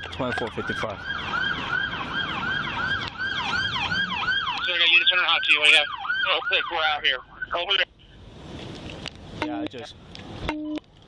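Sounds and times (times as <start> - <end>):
lower warbling siren: 0.0 - 7.6
emergency sirens on yelp cycle: 0.0 - 7.9.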